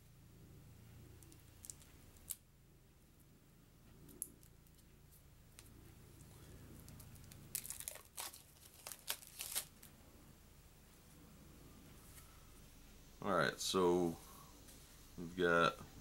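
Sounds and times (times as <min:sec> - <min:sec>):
plastic shrink-wrap crinkling and tearing: 0:06.2 - 0:09.9.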